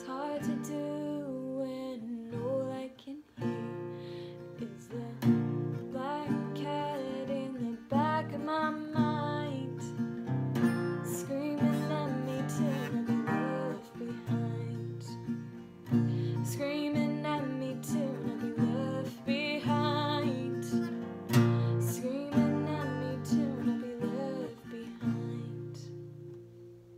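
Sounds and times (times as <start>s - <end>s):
woman singing: 0.0s - 10.1s, 10.7s - 26.2s
acoustic guitar strumming chords: 3.4s - 26.9s.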